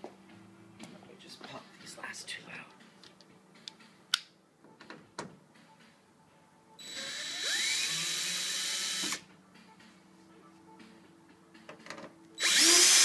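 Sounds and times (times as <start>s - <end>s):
cordless drill motor whine: 6.8s - 9.2s, 12.4s - 13.0s.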